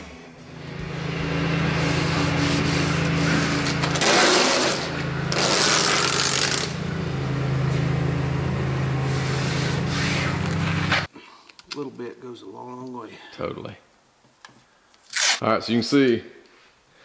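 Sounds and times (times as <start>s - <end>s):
low mechanical hum: 0.0s - 11.1s
masking tape pulled off roll: 1.8s - 6.8s, 15.0s - 15.4s.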